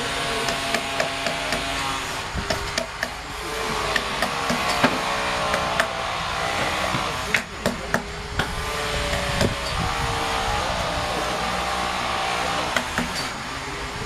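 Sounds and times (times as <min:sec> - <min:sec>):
mallet striking chisel into wood: 0:00.4 - 0:01.8, 0:02.5 - 0:03.2, 0:03.9 - 0:06.0, 0:06.6 - 0:09.8, 0:12.7 - 0:13.3.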